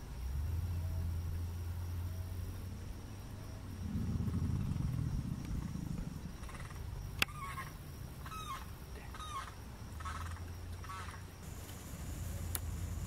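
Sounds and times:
alligator bellowing: 3.4s - 13.0s
bird short calls: 7.3s - 11.2s.

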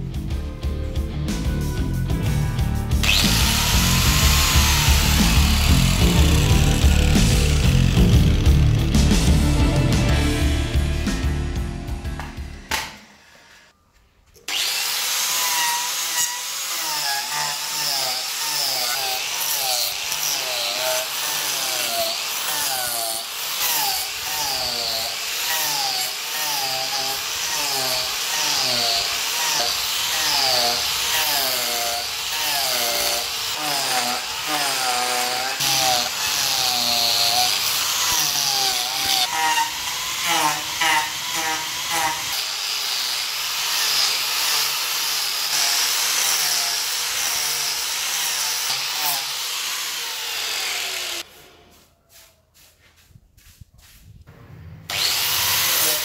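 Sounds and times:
angle grinder sanding wood: 3.0s - 9.6s, 14.5s - 54.1s, 54.9s - 56.0s.

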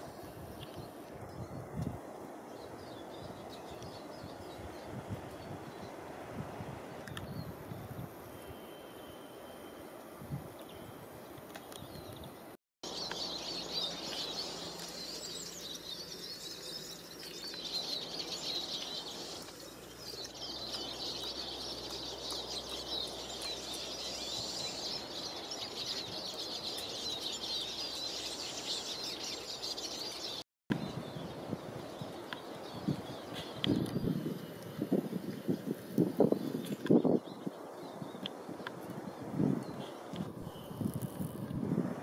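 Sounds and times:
small birds chirping: 10.6s - 41.4s.

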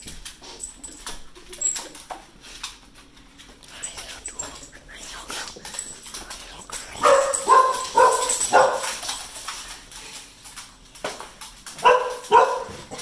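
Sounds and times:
dog barking: 7.0s - 9.0s, 11.8s - 13.0s.

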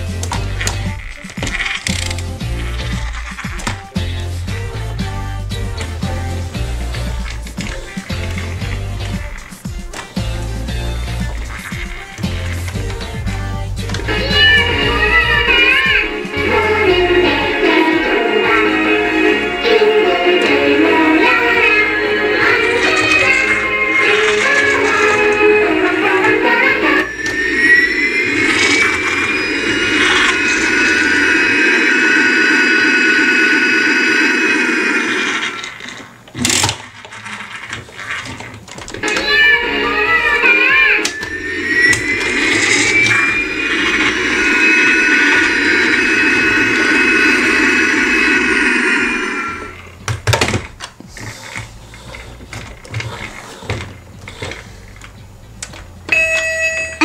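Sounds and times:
toy jet engine whine: 0.0s - 50.3s
hiss: 5.8s - 36.0s, 40.3s - 49.9s.

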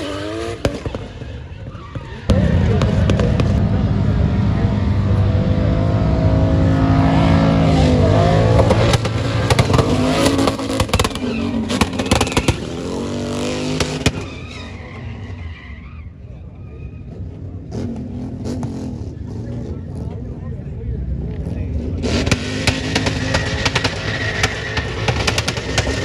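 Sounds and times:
car engine revving hard: 2.3s - 14.2s, 21.3s - 26.0s.

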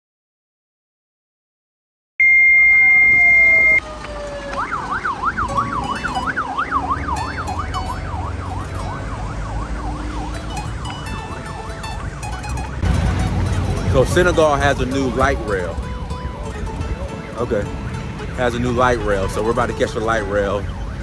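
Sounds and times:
high steady siren tone: 2.2s - 14.2s
emergency siren yelping: 2.2s - 14.4s, 19.3s - 21.0s
street traffic rumble: 2.5s - 21.0s.

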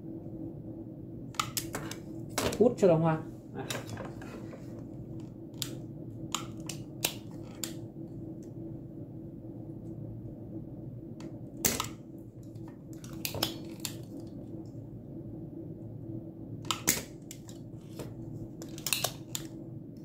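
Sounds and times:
steady low hum: 0.0s - 20.0s
hand tool clicks and snaps: 18.6s - 19.5s.

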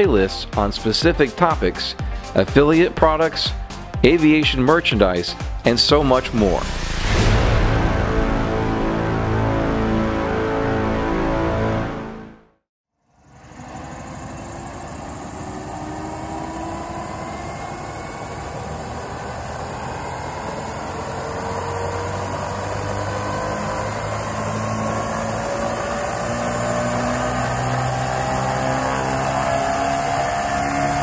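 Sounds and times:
low hum: 6.2s - 11.9s, 13.2s - 31.0s
electric motor whine: 13.2s - 31.0s
helicopter rotor noise: 13.2s - 31.0s.

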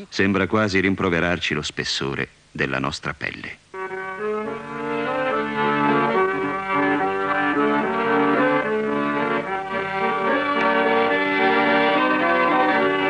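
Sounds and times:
instrumental background music: 3.7s - 13.0s.

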